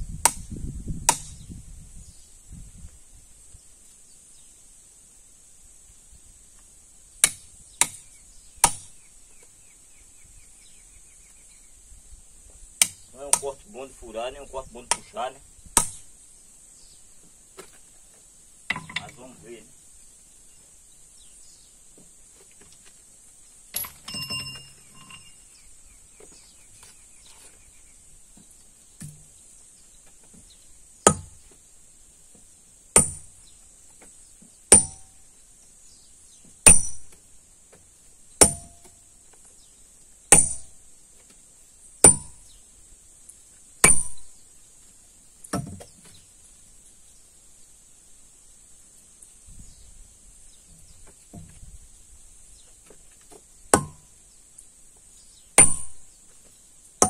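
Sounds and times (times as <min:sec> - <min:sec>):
sledgehammer striking steel wedges: 0:08.6 - 0:08.9, 0:15.8 - 0:16.1, 0:18.7 - 0:19.3, 0:23.7 - 0:25.4, 0:31.0 - 0:31.4, 0:33.0 - 0:33.4, 0:34.7 - 0:35.2, 0:36.6 - 0:37.2, 0:38.4 - 0:39.0, 0:40.3 - 0:40.7, 0:42.0 - 0:42.4, 0:43.8 - 0:44.3, 0:53.7 - 0:54.1, 0:55.6 - 0:56.0
metallic clinks: 0:23.7 - 0:25.5.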